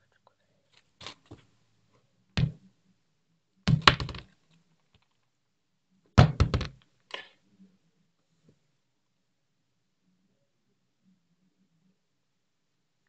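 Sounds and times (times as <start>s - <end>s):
close-up thuds and taps: 2.4s - 2.6s, 3.7s - 4.2s.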